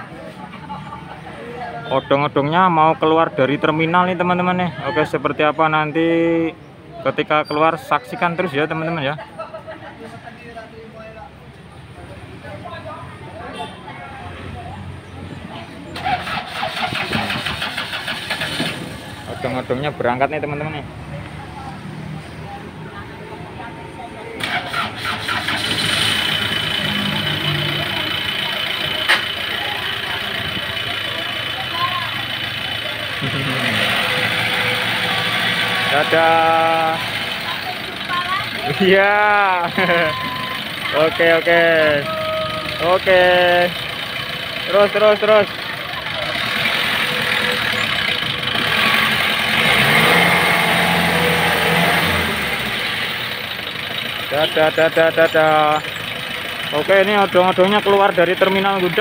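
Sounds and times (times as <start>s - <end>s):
train engine running: 24.4s - 59.0s.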